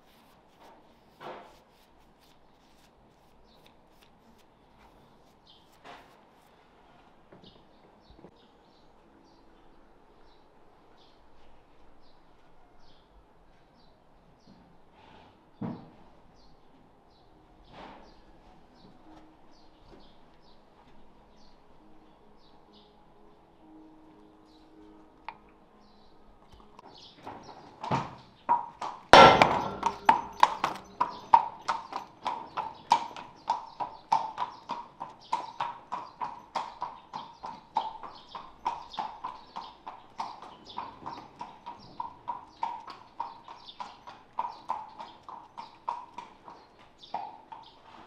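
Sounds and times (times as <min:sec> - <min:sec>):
metallic strikes on a horseshoe: 0:29.2 - 0:31.2.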